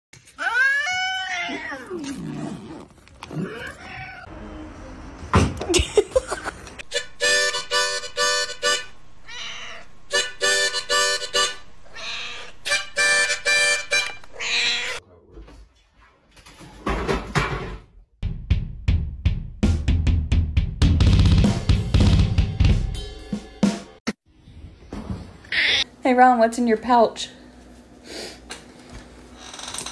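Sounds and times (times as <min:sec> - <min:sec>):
cat meowing: 0:00.4 - 0:02.3, 0:03.3 - 0:04.3, 0:09.2 - 0:09.9, 0:11.9 - 0:12.6, 0:14.3 - 0:15.0
harmonica playing: 0:06.8 - 0:09.0, 0:10.1 - 0:11.7, 0:12.6 - 0:14.3.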